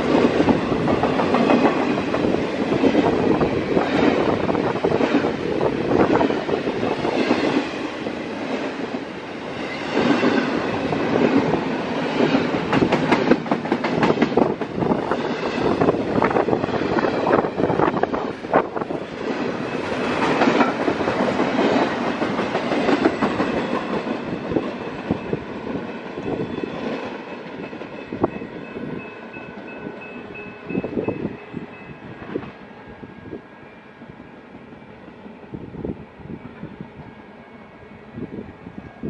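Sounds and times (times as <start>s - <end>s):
freight train wheels clicking: 0.0s - 28.4s.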